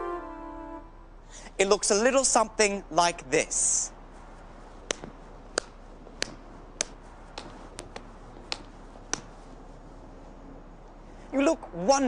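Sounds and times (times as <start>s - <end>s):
faint room hiss: 0.0s - 12.0s
sharp light clicking taps: 4.9s - 9.3s.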